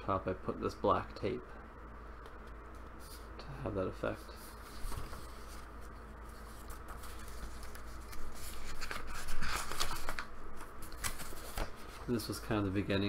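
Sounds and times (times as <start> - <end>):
faint low hum: 0.0 - 13.0
paper pages rustling: 4.2 - 12.4.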